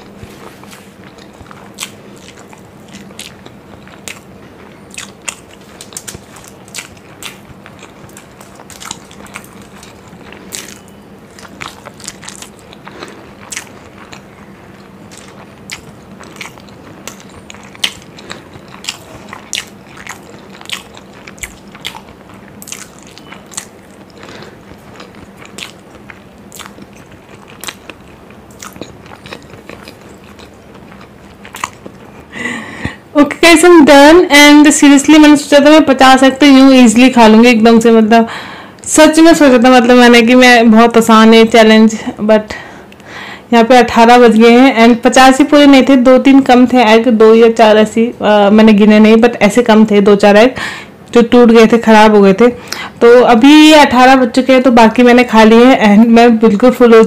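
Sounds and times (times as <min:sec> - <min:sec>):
chewing: 0:00.0 - 0:32.3
faint steady hum: 0:00.0 - 0:57.0.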